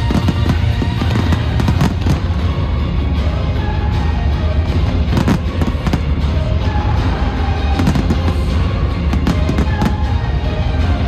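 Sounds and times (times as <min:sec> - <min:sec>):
fireworks cracking and banging: 0:00.0 - 0:02.5, 0:05.0 - 0:06.2, 0:07.7 - 0:10.3
music with heavy bass: 0:00.0 - 0:11.0.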